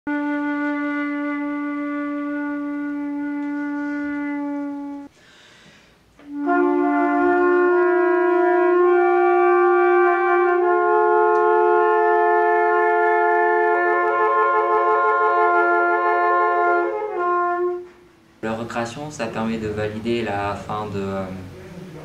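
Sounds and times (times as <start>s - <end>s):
flute playing held notes: 0.1s - 5.1s, 6.2s - 18.3s
trumpet playing held notes: 0.1s - 5.1s, 6.2s - 18.5s.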